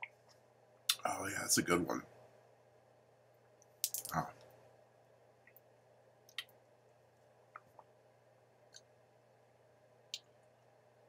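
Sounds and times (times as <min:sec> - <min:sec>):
swallowing clicks and lip smacks: 0:06.3 - 0:06.6, 0:07.5 - 0:07.9.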